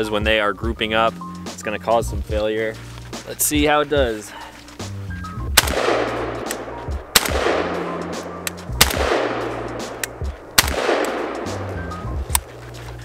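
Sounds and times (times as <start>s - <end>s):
rifle shots with echo: 5.5s - 12.5s.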